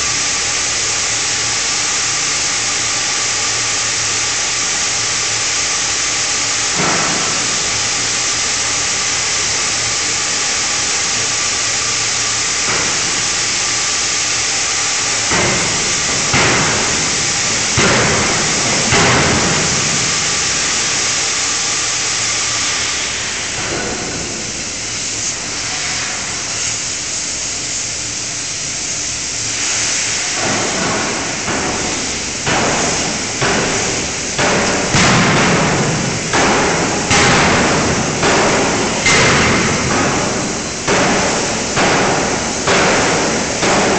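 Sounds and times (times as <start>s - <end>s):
machinery hissing: 0.0s - 43.9s
forging hammer blows on steel: 12.6s - 26.3s, 29.6s - 43.9s.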